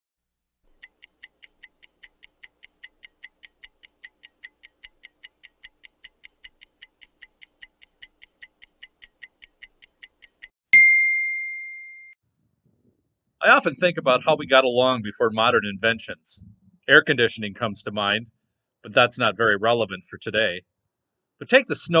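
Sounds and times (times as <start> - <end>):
microwave timer ticking: 0.6 - 10.6
bell ding: 10.8 - 12.2.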